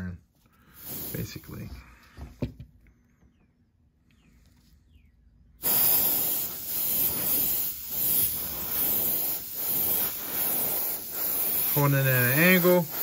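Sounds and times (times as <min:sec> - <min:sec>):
airbrush hissing: 0:00.6 - 0:01.5, 0:05.6 - 0:13.0.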